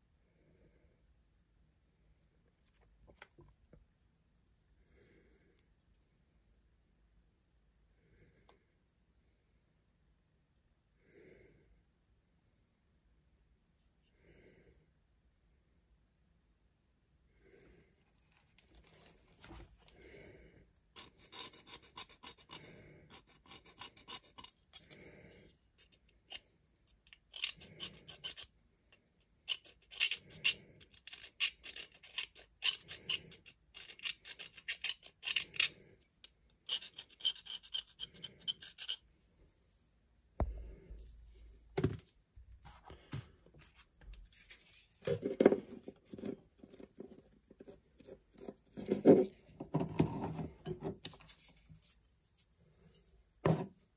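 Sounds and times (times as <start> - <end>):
hand tool scratching and rubbing: 21.0 - 25.0, 25.8 - 28.5, 29.5 - 35.8, 36.6 - 39.1.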